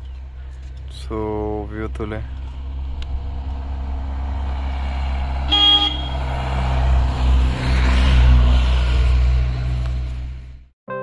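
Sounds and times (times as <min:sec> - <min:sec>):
engine hum and road noise: 0:00.0 - 0:10.8
vehicle horn toot: 0:05.5 - 0:06.2.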